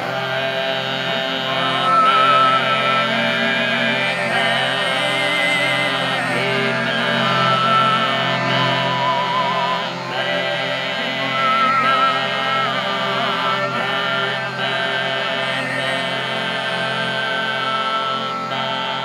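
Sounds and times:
low vocal drone: 0.0 - 19.0
whistling overtone melody: 3.8 - 15.1.

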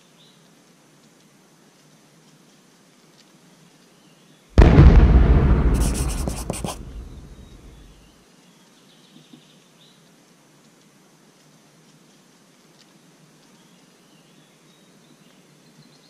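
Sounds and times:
crackling burst: 4.6 - 8.0
deep boom: 4.6 - 8.0.

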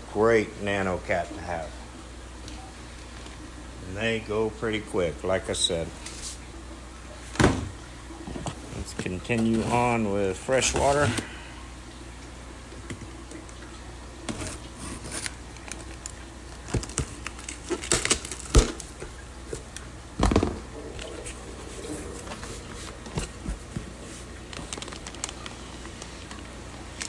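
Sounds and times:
blade slitting packing tape: 16.8 - 18.8.

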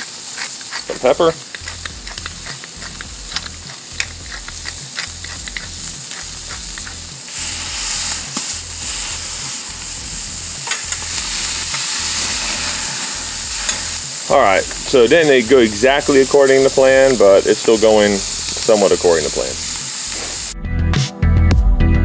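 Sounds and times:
spatula smashing beef: 0.0 - 20.3
beef sizzling on grill: 0.0 - 20.6.

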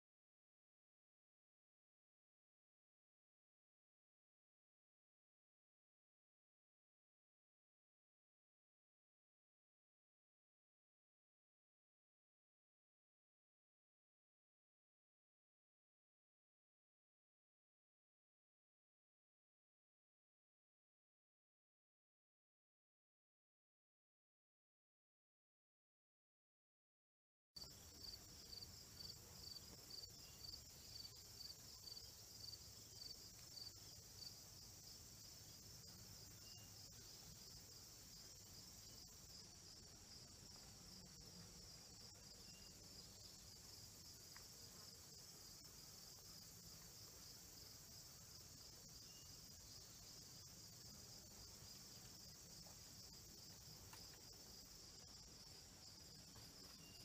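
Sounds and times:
insects trilling: 27.6 - 57.0.

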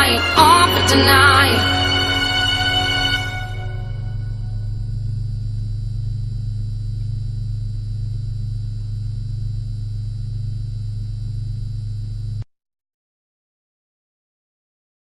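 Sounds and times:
steady low drone: 0.0 - 11.2.

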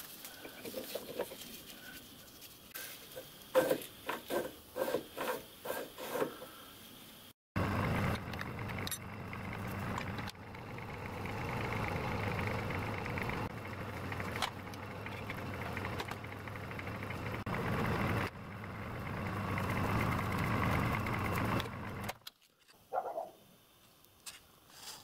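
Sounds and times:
lathe motor and gear hum: 7.6 - 22.2.

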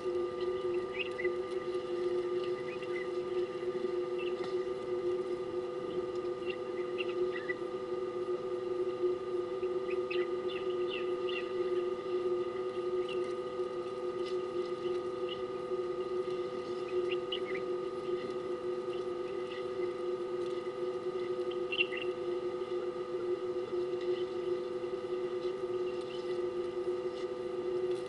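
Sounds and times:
steady hum of fixed tones: 0.0 - 28.0
bird chirps: 0.4 - 1.3, 2.6 - 3.1, 6.4 - 7.6, 9.8 - 11.8, 16.8 - 17.7, 21.6 - 22.1.

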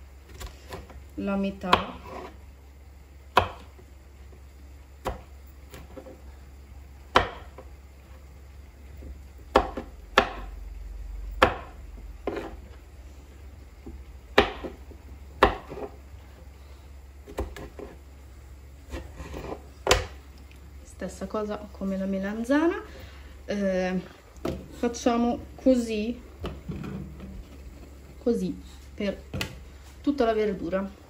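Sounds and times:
knife chopping on wooden board: 1.7 - 2.3, 3.4 - 3.7, 7.1 - 7.7, 9.5 - 10.5, 11.4 - 12.6, 14.3 - 14.8, 15.4 - 16.0, 17.2 - 18.0, 18.9 - 20.2.

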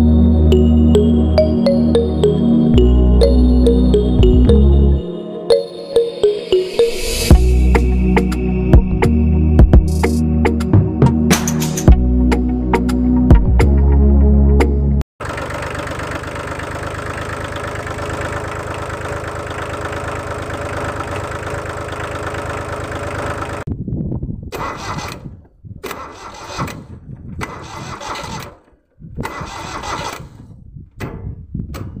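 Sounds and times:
diesel tractor engine running: 15.2 - 23.7, 24.6 - 30.5.

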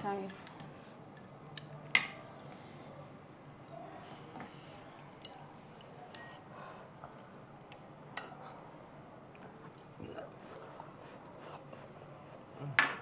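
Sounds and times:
chopsticks clinking against bowls: 6.1 - 6.5.

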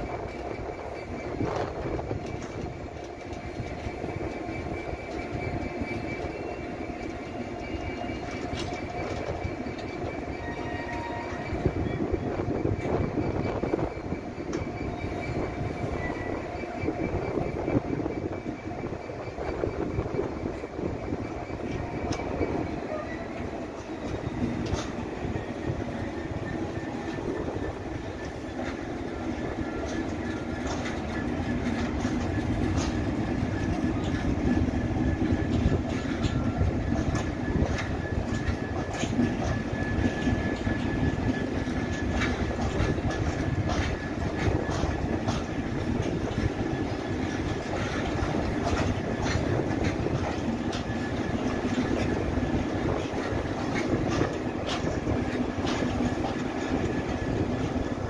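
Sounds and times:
freight train rumbling: 0.0 - 58.0
wheels clunking over rail joints: 0.0 - 58.0
high wheel squeal: 3.5 - 55.2.

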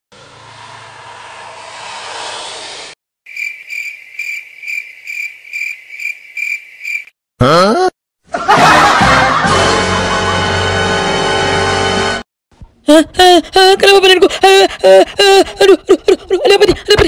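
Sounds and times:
cricket chirps: 3.3 - 7.1.

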